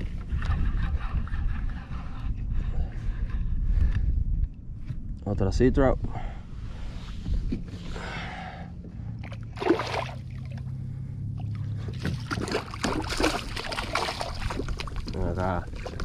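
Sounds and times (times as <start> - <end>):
fish splashing in water: 9.2 - 10.7, 11.8 - 16.0.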